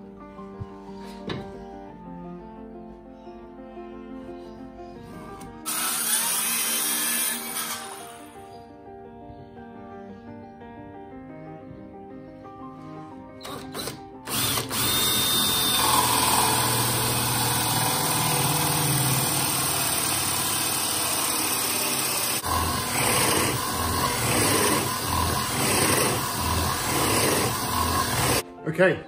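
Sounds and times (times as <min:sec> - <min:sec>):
drill boring into wood: 0:05.7 - 0:08.2, 0:13.4 - 0:28.4.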